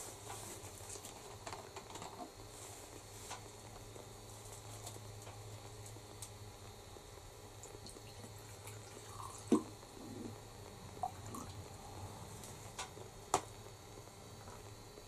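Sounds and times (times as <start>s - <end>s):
liquid trickling into a glass: 7.8s - 10.2s.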